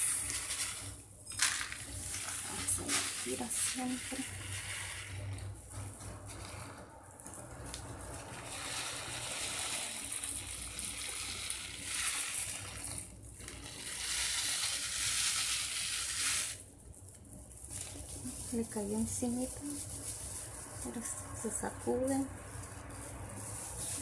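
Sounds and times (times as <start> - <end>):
sand pouring into glass bowl: 0.0 - 5.4, 8.3 - 16.6.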